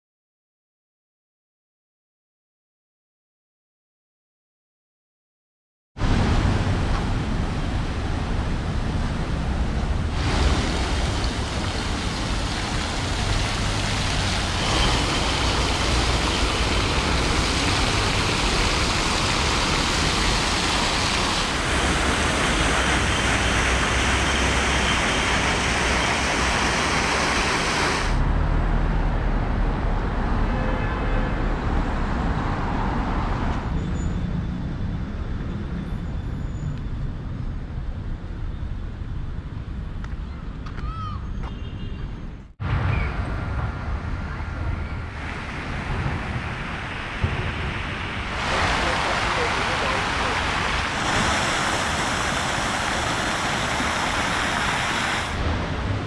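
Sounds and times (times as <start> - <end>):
city street traffic: 6.0 - 56.0.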